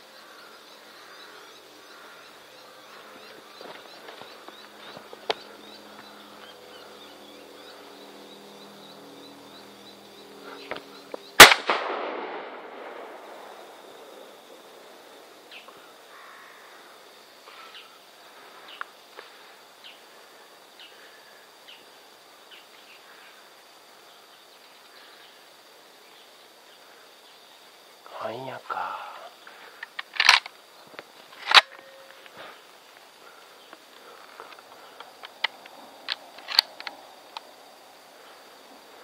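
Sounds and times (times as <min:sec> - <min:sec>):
shotgun shot with echo: 0:11.4 - 0:13.1.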